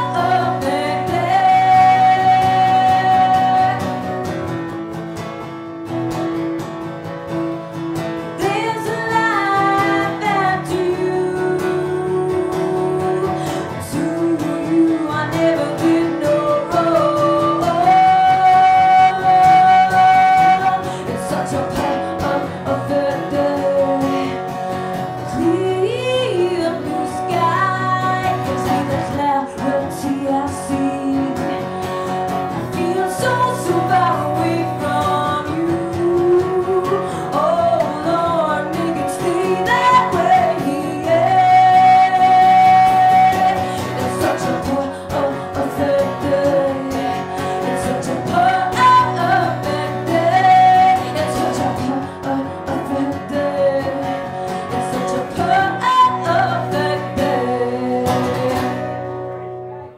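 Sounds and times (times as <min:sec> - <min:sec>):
woman singing: 0:00.0 - 0:04.6, 0:08.0 - 0:59.8
acoustic guitar: 0:00.0 - 0:59.9.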